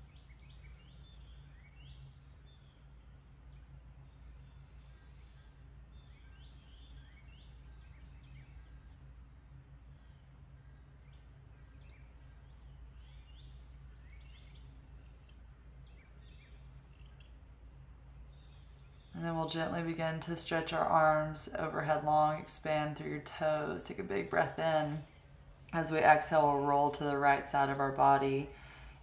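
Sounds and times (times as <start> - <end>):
low steady hum: 0.0 - 29.0.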